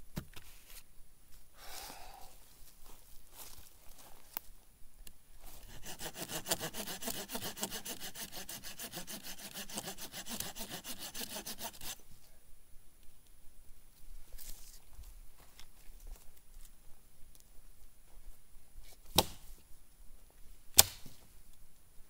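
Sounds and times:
hand saw cutting branch: 0:05.6 - 0:12.0.

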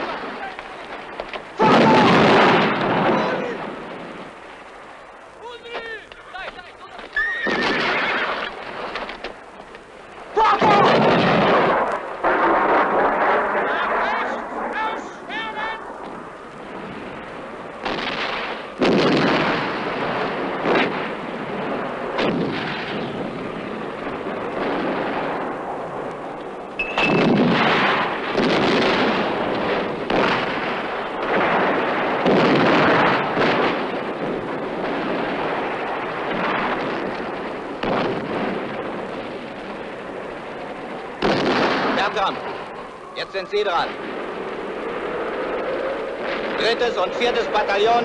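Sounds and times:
heavy explosions: 0:00.0 - 0:48.0
gunfire: 0:01.6 - 0:03.7, 0:07.4 - 0:09.2, 0:10.6 - 0:14.4, 0:17.8 - 0:21.2, 0:22.1 - 0:23.2, 0:26.8 - 0:38.8, 0:41.2 - 0:42.6.

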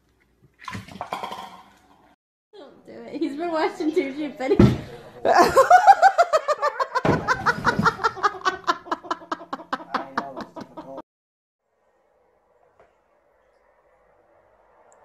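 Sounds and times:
person laughing hard: 0:05.3 - 0:11.0
dull thump: 0:07.0 - 0:08.1.

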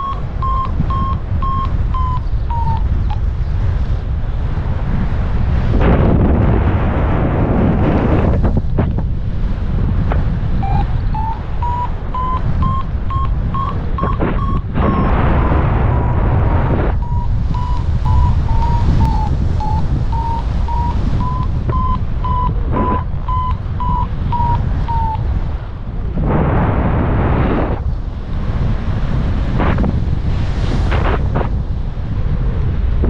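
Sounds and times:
variometer beeping short tones: 0:00.0 - 0:03.3, 0:10.6 - 0:15.2, 0:15.8 - 0:25.3
wind rumble on microphone: 0:00.0 - 0:33.0.

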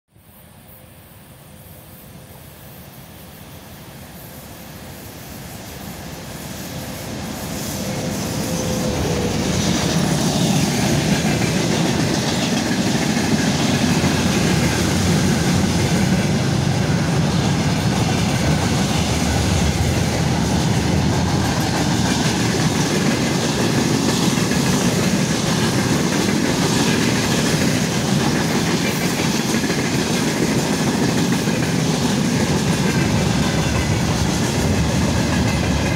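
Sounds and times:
freight train passing: 0:00.2 - 0:35.9
wheels clacking over rail joints: 0:07.8 - 0:35.9.

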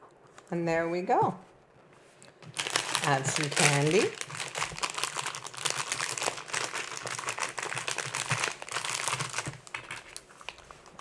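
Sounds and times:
plastic bag crinkling: 0:02.4 - 0:11.0.

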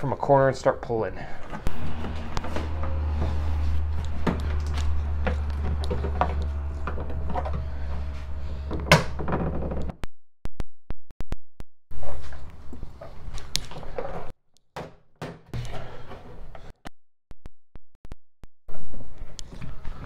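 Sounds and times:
steady low hum: 0:01.5 - 0:10.0.

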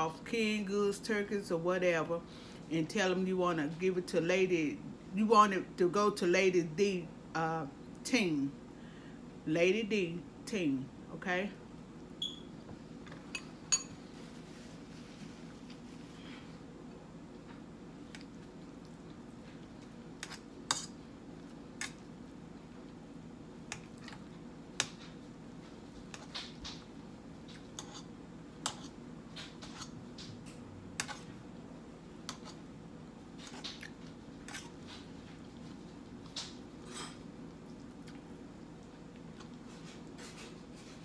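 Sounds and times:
steady low hum: 0:00.0 - 0:41.0
person eating: 0:23.6 - 0:24.8.

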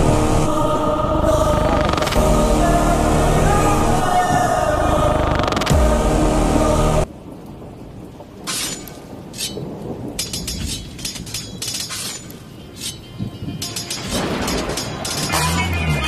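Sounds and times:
music: 0:00.0 - 0:07.1, 0:12.4 - 0:16.0
crackling rain-like noise: 0:02.9 - 0:16.0.

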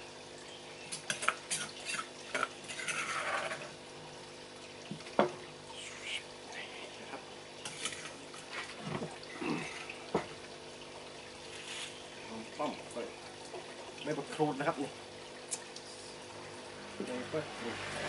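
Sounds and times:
water trickling: 0:00.0 - 0:18.0
spoon scraping in stone mortar: 0:01.5 - 0:03.7.

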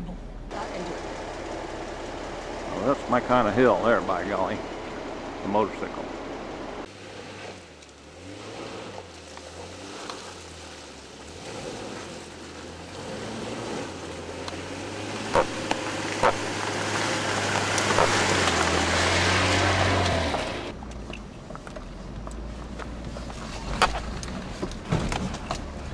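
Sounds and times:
car engine running at low revs: 0:00.0 - 0:25.9
sharp cracks: 0:15.3 - 0:19.2.

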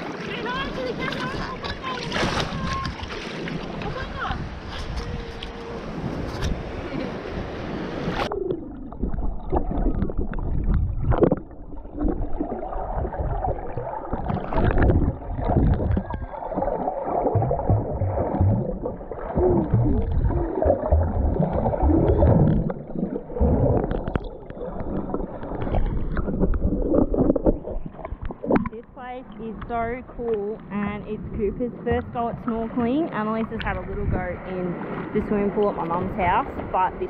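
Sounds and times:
muffled underwater sloshing: 0:00.0 - 0:37.0.

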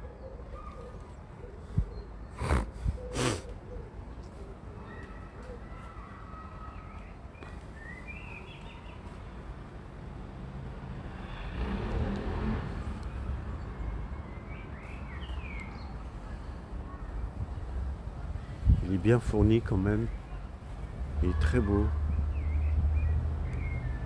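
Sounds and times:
small birds chirping: 0:00.0 - 0:09.4, 0:13.0 - 0:17.6, 0:18.2 - 0:24.0
broad rush of noise: 0:00.0 - 0:24.0.

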